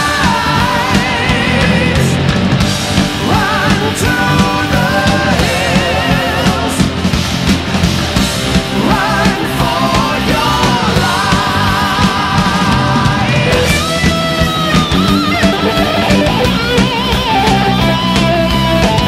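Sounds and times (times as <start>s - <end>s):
heavy rock music: 0.0s - 19.0s.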